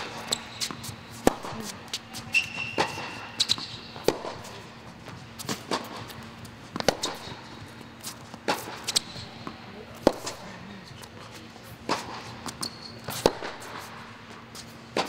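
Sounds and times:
shoe squeak: 0.0 - 4.1, 5.2 - 9.6, 12.2 - 13.4
rackets striking tennis ball: 0.0 - 15.0
tennis ball bouncing: 0.0 - 15.0.

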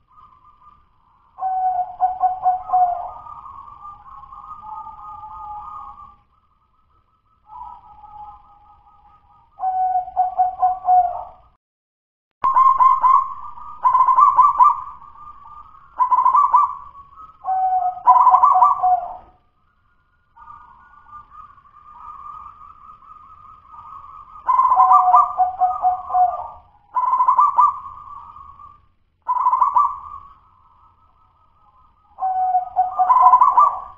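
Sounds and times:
dove cooing: 1.4 - 6.1, 9.6 - 11.4, 12.5 - 19.4, 20.4 - 30.4, 32.2 - 33.9.

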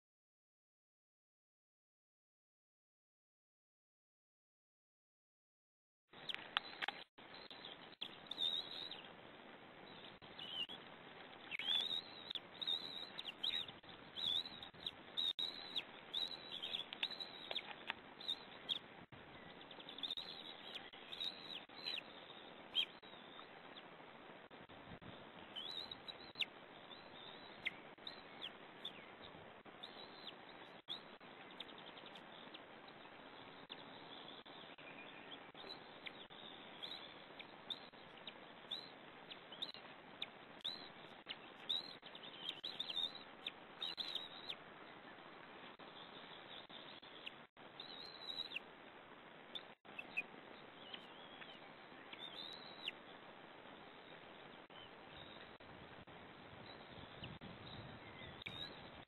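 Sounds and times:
microphone hiss: 6.2 - 59.0
eagle chicks peeping: 9.9 - 23.9, 25.1 - 48.7, 49.5 - 53.1.

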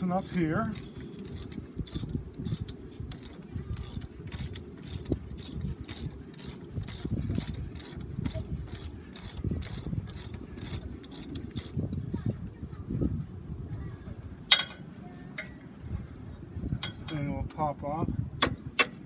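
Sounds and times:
ratchet wrench clicking: 0.0 - 12.0.

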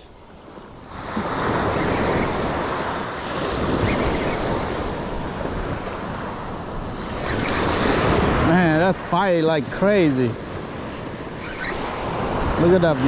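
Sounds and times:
wind on microphone: 0.0 - 8.9, 10.1 - 13.0
surf waves breaking on sand: 0.0 - 13.0.

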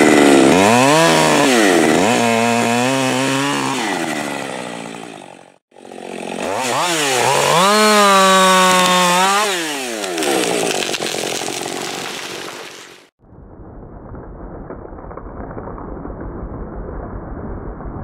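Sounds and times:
chainsaw revving: 0.0 - 12.4.

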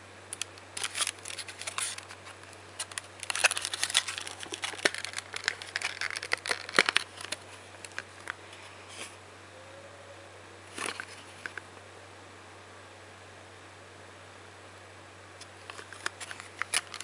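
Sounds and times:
plastic tray crinkling and clicking: 0.4 - 8.4, 15.7 - 17.0.

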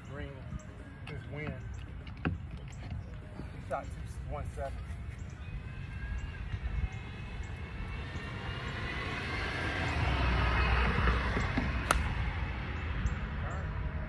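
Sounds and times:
wind rumble on microphone: 0.0 - 14.0
golf club striking ball: 11.5 - 12.2.

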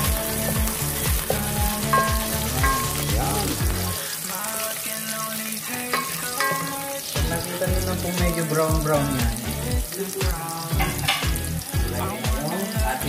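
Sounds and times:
music with thudding bass beat: 0.0 - 3.9, 7.2 - 13.0
aromatics sizzling in hot oil: 0.0 - 13.0.

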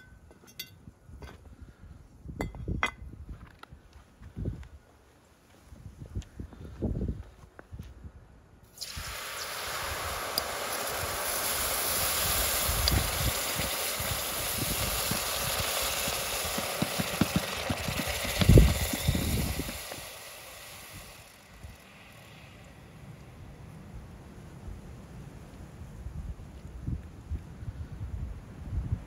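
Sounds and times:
hot metal hissing in water: 8.7 - 23.4.

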